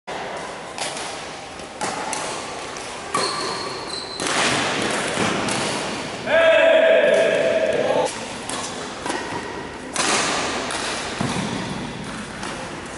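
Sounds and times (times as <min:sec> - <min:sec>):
rackets hitting shuttlecock: 0:00.3 - 0:06.1, 0:07.0 - 0:12.9.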